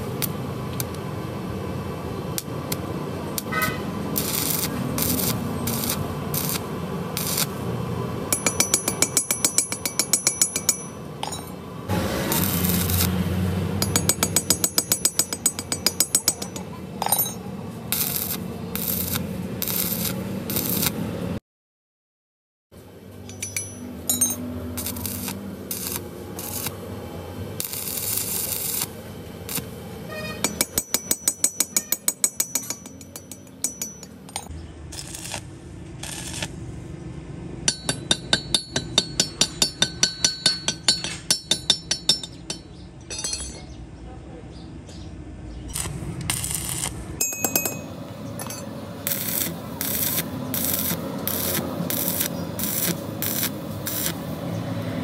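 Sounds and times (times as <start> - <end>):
welding arc crackling: 2.4 - 7.8, 11.9 - 16.6, 17.9 - 21.1, 24.6 - 36.6, 45.7 - 47.2, 49.0 - 54.5
hammer tapping on metal: 8.3 - 11.5, 13.8 - 17.4, 23.2 - 24.5, 30.4 - 34.5, 37.7 - 43.7, 47.2 - 48.7.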